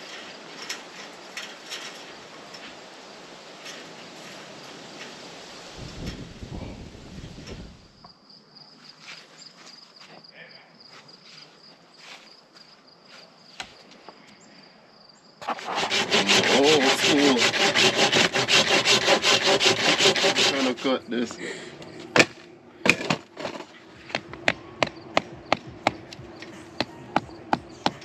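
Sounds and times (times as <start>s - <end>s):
hand saw cutting wood: 15.4s - 21.4s.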